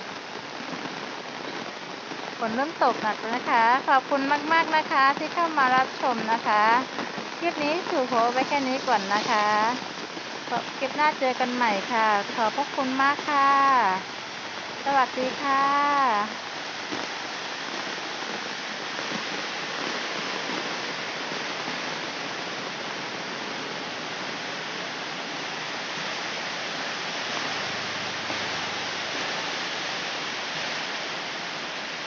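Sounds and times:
heavy rain on puddled ground: 0.0s - 32.0s.

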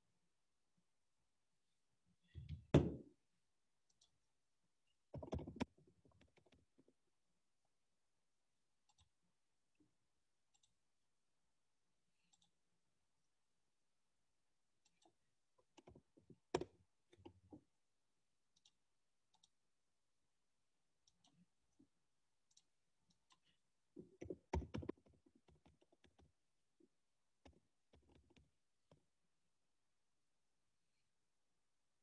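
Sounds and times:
keyboard and mouse clicks: 5.1s - 6.9s, 8.8s - 9.2s, 10.5s - 10.8s, 12.2s - 12.6s, 14.8s - 17.7s, 18.5s - 19.6s, 22.5s - 26.4s, 27.4s - 29.0s.

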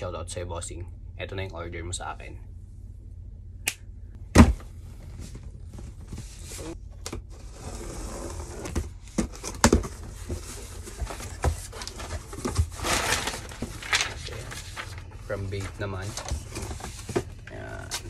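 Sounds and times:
packing paper rustling: 9.3s - 18.0s.

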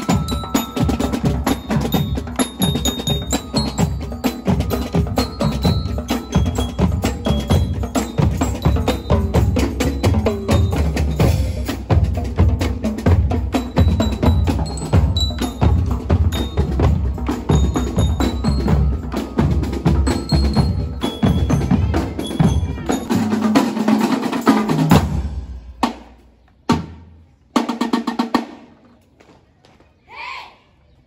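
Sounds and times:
marching drums: 0.0s - 28.8s
bell lyre notes: 13.6s - 23.2s.

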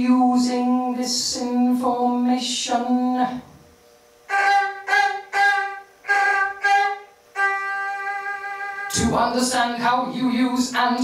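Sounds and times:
violin playing: 4.3s - 9.0s.

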